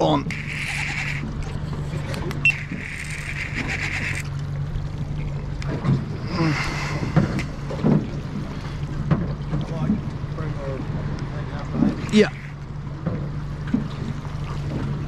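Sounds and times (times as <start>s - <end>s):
low boat hum: 0.0s - 15.0s
fishing reel buzzing: 0.2s - 4.3s.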